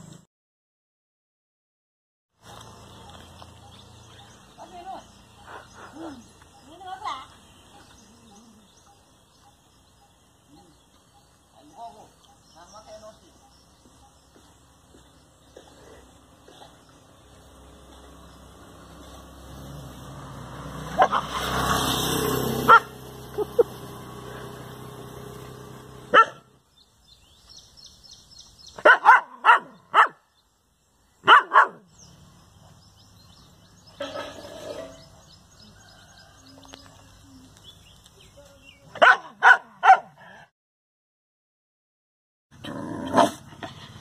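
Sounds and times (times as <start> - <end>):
dog barking: 21.0 - 21.4, 22.6 - 22.9, 26.1 - 26.5, 28.8 - 30.2, 31.2 - 31.9, 39.0 - 40.3.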